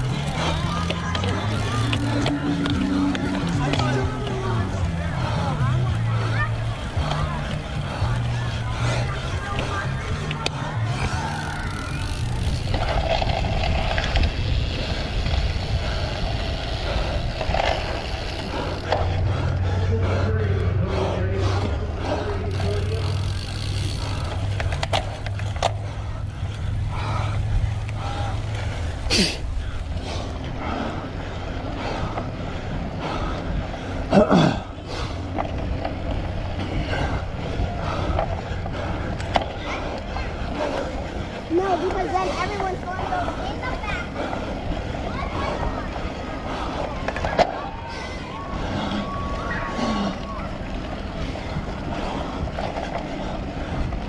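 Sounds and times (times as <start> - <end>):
bicycle rumbling over rough ground: 0.0 - 54.0
wind noise on microphone: 10.9 - 18.4.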